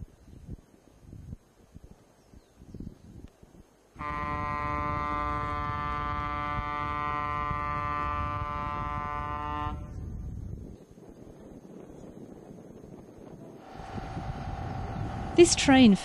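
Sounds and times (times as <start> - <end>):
ferry horn blast: 4.0 - 10.0
low rumble: 13.6 - 16.0.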